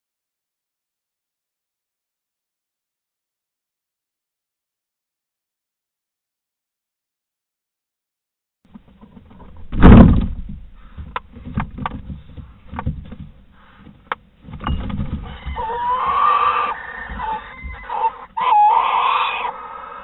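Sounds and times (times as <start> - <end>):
heavy thump: 9.6 - 15.6
owl hiss-screech: 15.6 - 20.0.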